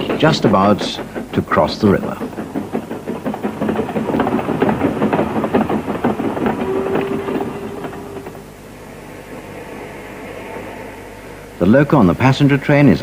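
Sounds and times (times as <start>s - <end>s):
model train wheels clattering: 0.0s - 8.8s
steady hum: 0.0s - 13.0s.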